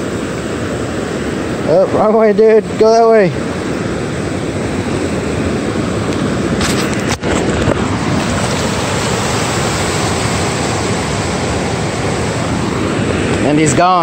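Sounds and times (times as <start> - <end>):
surf washing over sand: 0.0 - 14.0
wind rumbling on microphone: 0.0 - 14.0.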